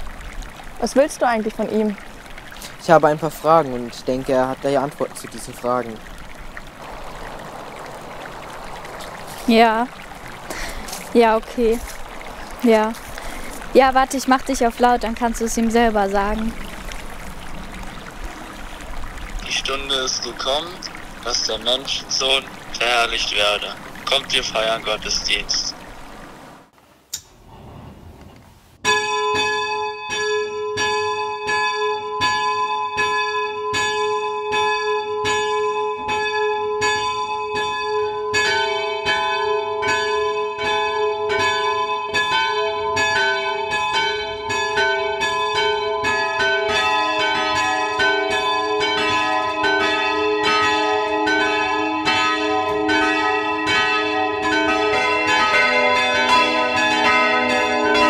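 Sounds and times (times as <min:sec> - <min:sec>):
church bells ringing: 0:28.8 - 0:58.0.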